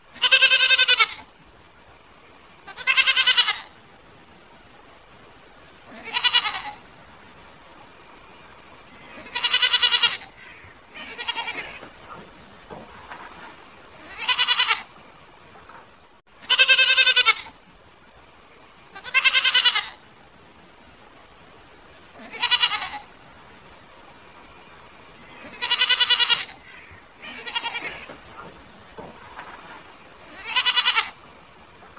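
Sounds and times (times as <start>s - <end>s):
goats bleating: 0.2s - 1.2s, 2.6s - 3.7s, 5.9s - 6.8s, 9.1s - 13.4s, 14.0s - 14.9s, 16.4s - 17.5s, 19.0s - 20.0s, 22.2s - 23.1s, 25.3s - 31.3s.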